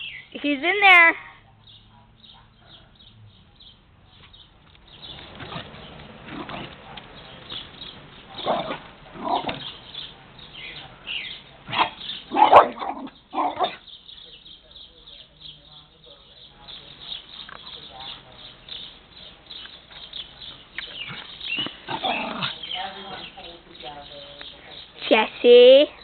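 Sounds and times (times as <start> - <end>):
small dog barking and yipping: 8.3 - 11.0, 11.7 - 13.8.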